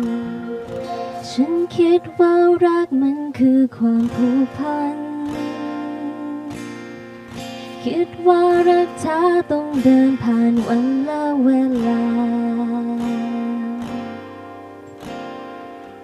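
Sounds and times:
instrumental accompaniment: 0.0s - 3.5s
woman singing into microphone: 0.0s - 6.7s, 7.8s - 14.2s.

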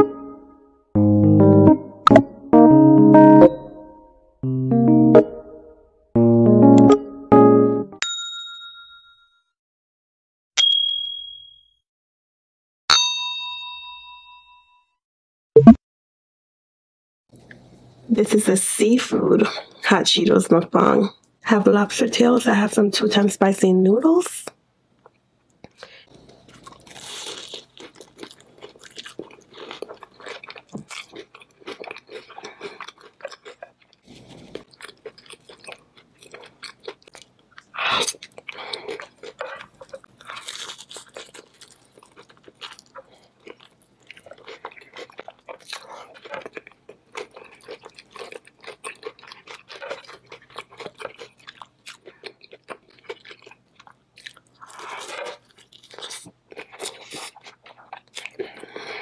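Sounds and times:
crunching and chewing: 25.0s - 59.0s.

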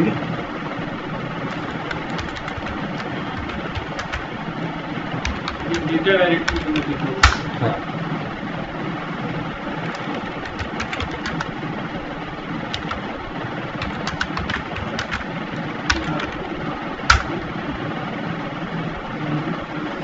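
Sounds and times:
steady low hum: 0.0s - 20.0s
computer keyboard typing: 1.5s - 4.4s, 5.1s - 7.5s, 9.8s - 11.6s, 12.6s - 13.2s, 13.8s - 17.9s.

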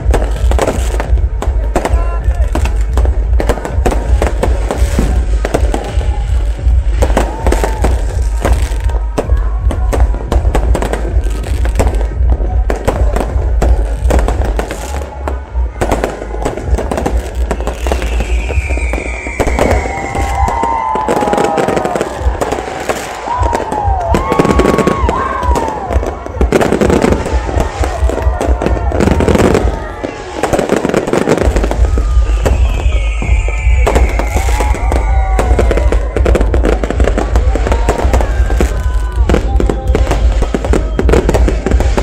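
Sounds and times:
fireworks bangs and crackling: 0.0s - 42.0s
firework whistles gliding in pitch: 16.6s - 25.8s, 29.2s - 36.3s.

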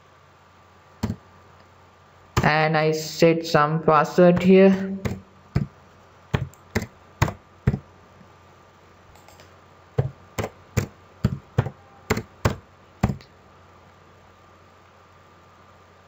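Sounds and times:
keyboard keystrokes: 4.4s - 5.7s, 6.4s - 7.8s, 9.2s - 13.3s.

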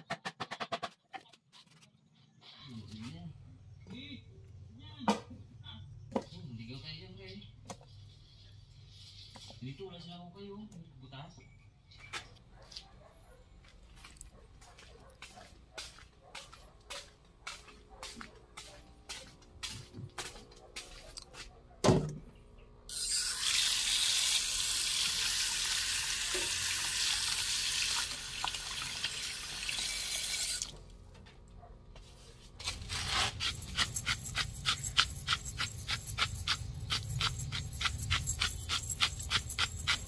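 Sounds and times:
pepper mill grinding and clicking: 22.9s - 30.8s, 32.6s - 40.0s
water running into steel bowl: 23.2s - 30.8s.

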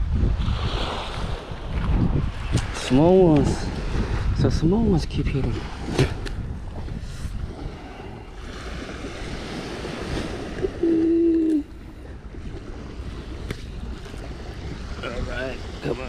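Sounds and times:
surf washing onto beach: 0.0s - 16.0s
wind on microphone: 0.0s - 16.0s
short steady tone: 10.6s - 11.7s.

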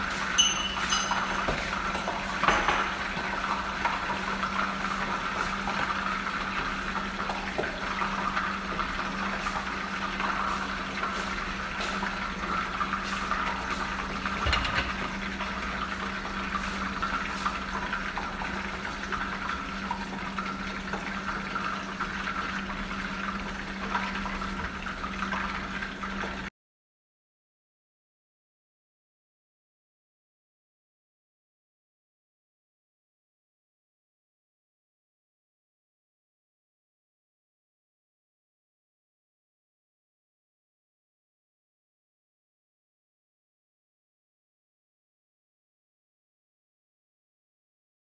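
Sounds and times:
pans hissing on gas stove: 0.0s - 19.7s.

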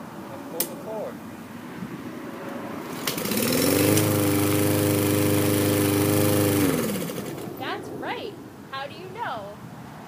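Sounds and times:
lawn mower pull-starting: 2.8s - 7.6s.

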